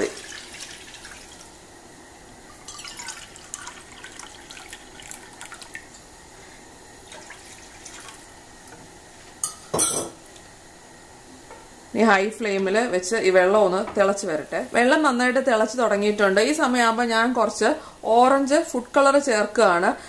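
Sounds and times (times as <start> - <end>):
water pouring into metal cup: 0.0 - 1.5, 2.5 - 6.0
water splashing in frying pan: 2.6 - 6.0, 7.1 - 8.3.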